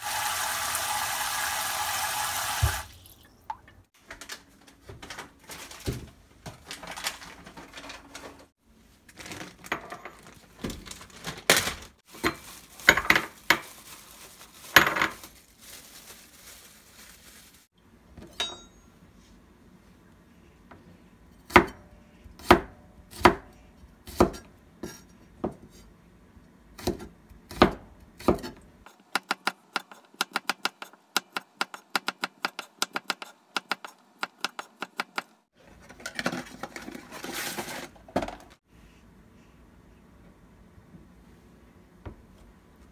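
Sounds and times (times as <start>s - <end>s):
kitchen items clattering on counter: 9.2s - 13.8s, 14.6s - 15.4s, 35.8s - 38.6s.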